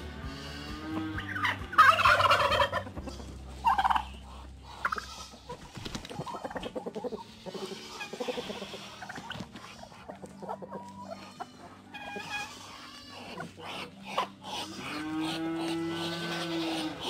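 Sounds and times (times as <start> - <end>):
chickens clucking quietly: 0.3 - 17.0
turkey gobbling: 0.4 - 17.0.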